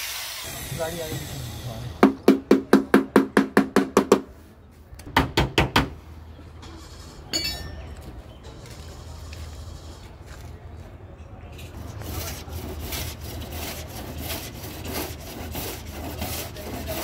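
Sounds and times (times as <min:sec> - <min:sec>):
short metallic clink: 0:07.3 - 0:08.1.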